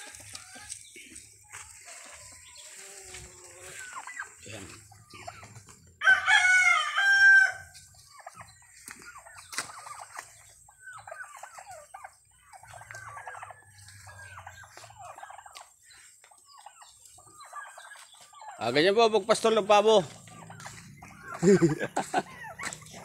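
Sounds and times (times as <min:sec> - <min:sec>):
turkey long drawn-out call: 0:06.0 - 0:08.4, 0:20.3 - 0:22.8.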